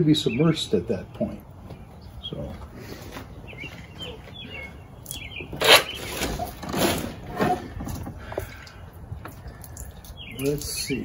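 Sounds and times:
birds chirping: 0:00.0 - 0:11.0
handling noises on outboard motor: 0:04.8 - 0:09.5.

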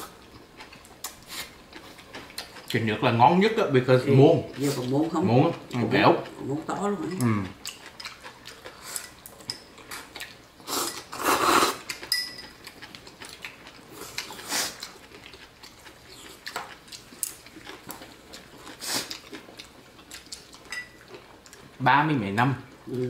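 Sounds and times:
utensils clinking on bowls: 0:12.0 - 0:12.6, 0:20.6 - 0:21.0.

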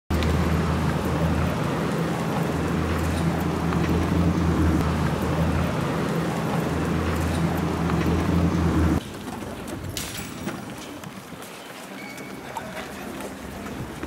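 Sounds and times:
low hum and rumble: 0:00.1 - 0:09.0.

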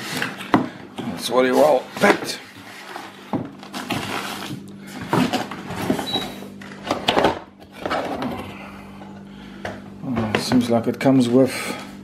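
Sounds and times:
cardboard and plastic rustling: 0:00.0 - 0:08.6
faint steady hum: 0:00.0 - 0:12.0.

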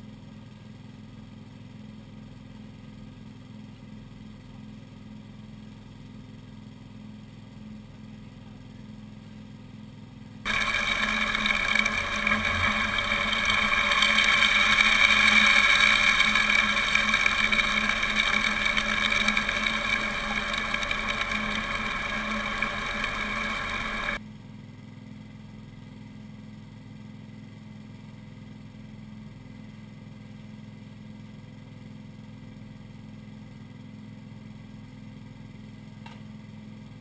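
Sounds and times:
small water pump engine humming: 0:10.5 - 0:24.2
water gushing into hopper: 0:10.5 - 0:24.2.

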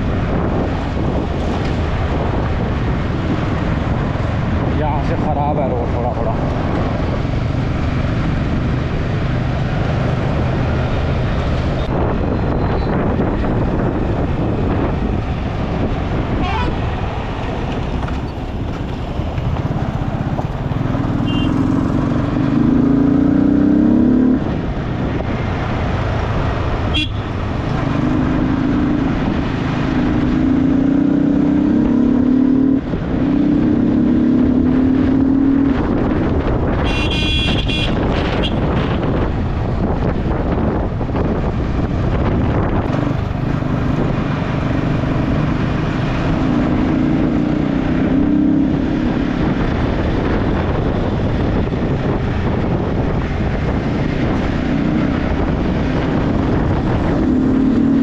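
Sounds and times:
tyres on gravel road: 0:00.0 - 0:30.4, 0:35.8 - 0:58.0
wind noise: 0:00.0 - 0:58.0
motorcycle engine accelerating: 0:17.2 - 0:36.8, 0:38.0 - 0:58.0.

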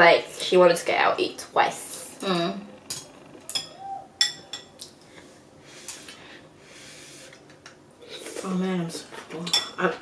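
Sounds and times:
chopsticks clinking on ceramic bowls: 0:02.9 - 0:05.0.

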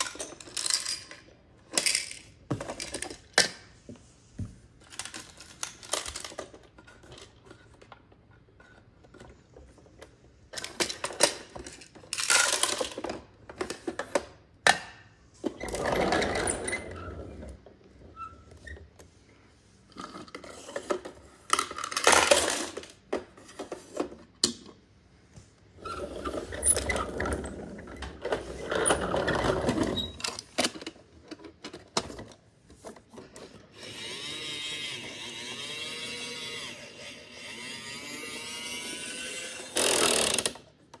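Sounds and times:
plastic toy clicks and clatters: 0:00.0 - 0:03.6, 0:04.8 - 0:08.0, 0:10.5 - 0:14.4, 0:20.1 - 0:24.2, 0:39.7 - 0:41.0
toy wheels rolling rumble: 0:15.6 - 0:17.6
toy mechanism buzzing: 0:33.7 - 0:40.6.

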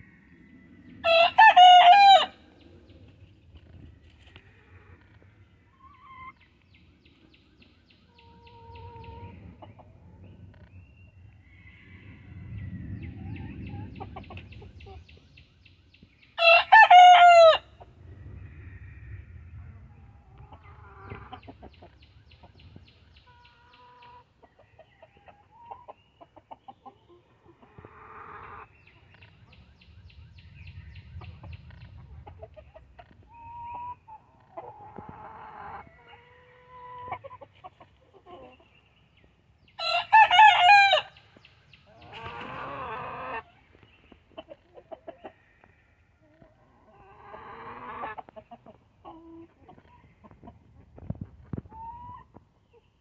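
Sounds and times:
chickens clucking: 0:03.5 - 0:06.6, 0:08.1 - 0:10.7, 0:13.2 - 0:15.1, 0:20.2 - 0:29.7, 0:31.1 - 0:39.4, 0:41.5 - 0:53.0
chicken calls: 0:04.2 - 0:06.5, 0:08.1 - 0:10.7, 0:20.0 - 0:29.7, 0:31.2 - 0:38.9, 0:39.8 - 0:52.9.

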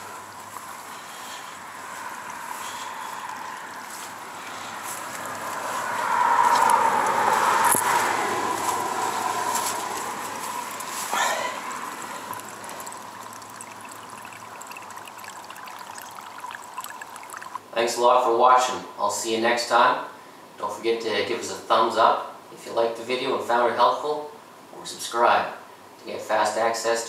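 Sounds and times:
water trickling: 0:00.0 - 0:17.8.

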